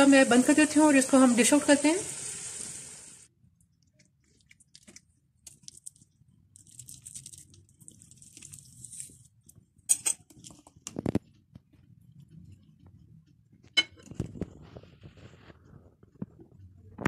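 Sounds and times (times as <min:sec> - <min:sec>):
metal clinking on crockery: 0:09.9 - 0:10.3
cutlery scraping on plate: 0:09.9 - 0:10.6, 0:13.7 - 0:14.3.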